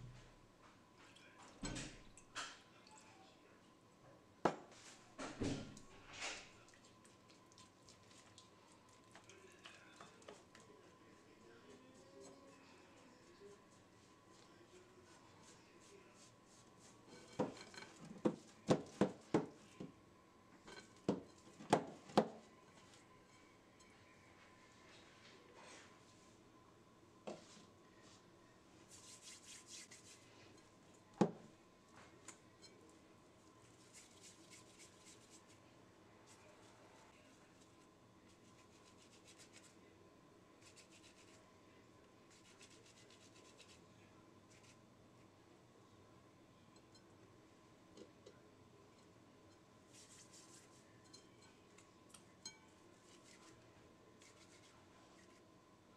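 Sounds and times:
palms rubbing dough: 0:13.0 - 0:19.9, 0:28.8 - 0:30.6, 0:33.6 - 0:35.6, 0:42.3 - 0:44.8, 0:49.9 - 0:50.9.

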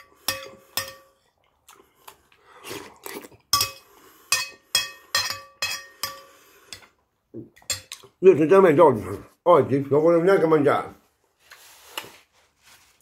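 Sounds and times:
spoon clinking on ceramic bowl: 0:00.0 - 0:01.2, 0:03.5 - 0:06.4, 0:07.6 - 0:08.1.

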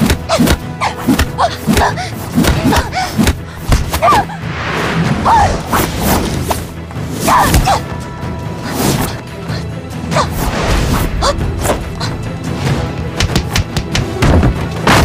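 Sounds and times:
dramatic film score: 0:00.0 - 0:15.0
swishes of movement: 0:00.4 - 0:07.6.

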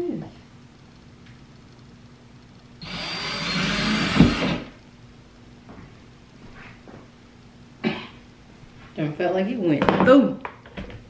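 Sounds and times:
cordless drill boring into wall: 0:02.8 - 0:04.8.

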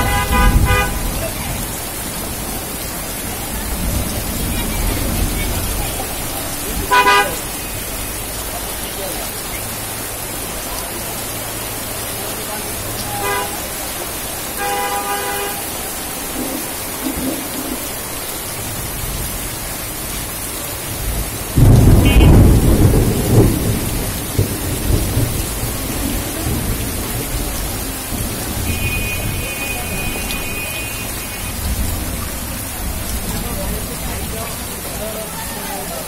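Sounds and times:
heavy rain on a street: 0:00.0 - 0:36.0
thunder clap: 0:16.2 - 0:18.1, 0:20.9 - 0:30.4.

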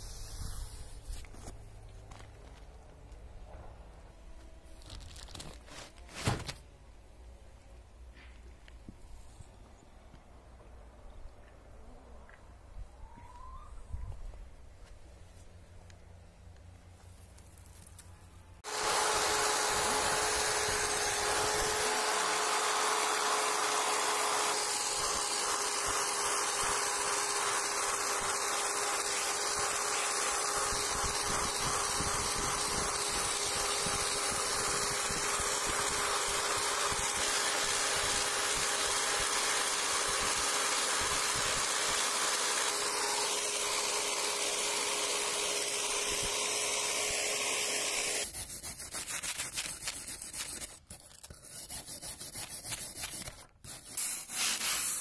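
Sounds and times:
electric drill motor whine: 0:18.6 - 0:48.2
wire brush scratching metal: 0:48.2 - 0:55.0.

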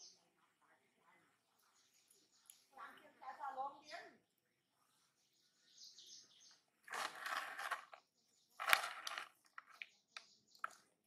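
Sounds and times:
plastic snack packet crinkling: 0:06.9 - 0:08.0, 0:08.6 - 0:09.9.

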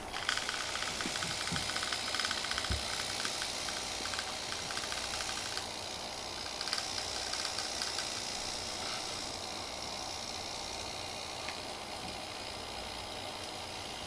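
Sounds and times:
toy tank tracks rattling: 0:00.0 - 0:09.4
toy tank gear motors running: 0:00.0 - 0:14.0.

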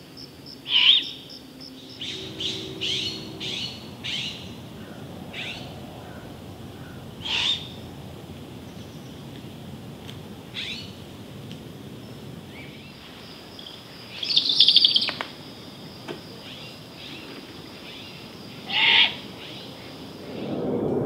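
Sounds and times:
young owl begging screeches: 0:18.7 - 0:19.2.

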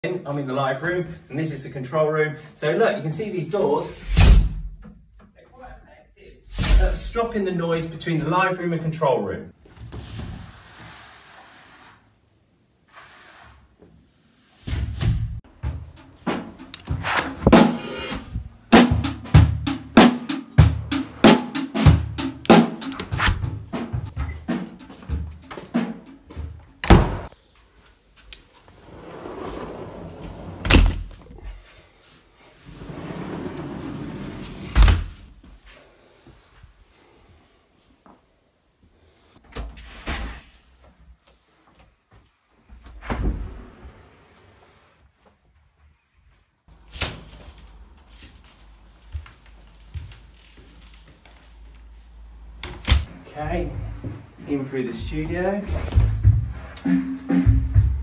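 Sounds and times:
loud low door thumps: 0:26.8 - 0:27.3
sliding door rolling on track: 0:28.7 - 0:30.7, 0:32.7 - 0:34.7.

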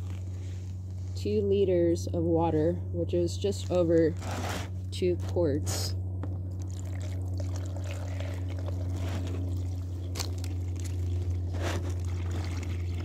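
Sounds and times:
steady low hum: 0:00.0 - 0:13.0
water pouring into plastic box: 0:06.7 - 0:09.8, 0:10.7 - 0:13.0.

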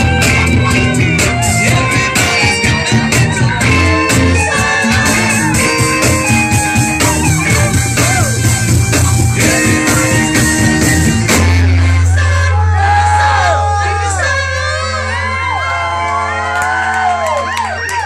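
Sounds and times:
drum beat: 0:00.0 - 0:12.2
guitar: 0:00.0 - 0:12.7
people singing: 0:00.0 - 0:15.5
saxophone: 0:00.0 - 0:16.9
keyboard: 0:00.0 - 0:17.3.

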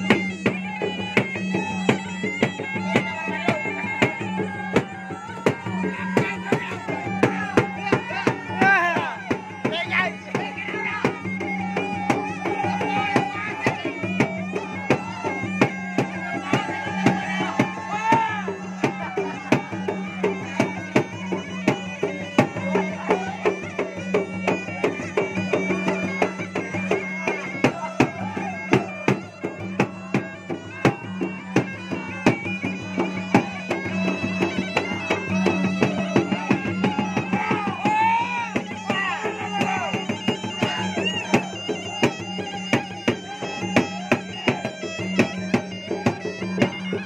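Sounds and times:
continuous melody: 0:00.0 - 0:47.0
drums beaten in fast rhythm: 0:00.0 - 0:47.0.

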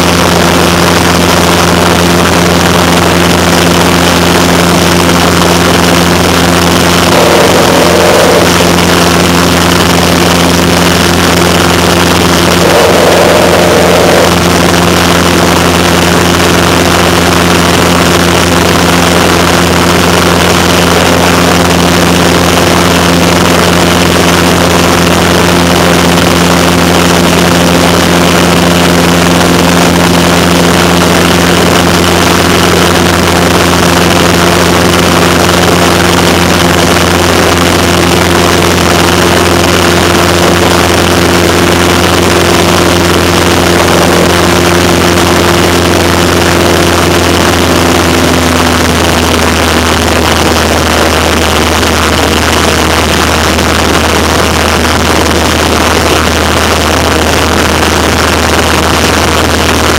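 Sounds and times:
airplane engine and propeller: 0:00.0 - 0:59.9
wind rushing: 0:12.6 - 0:14.6.

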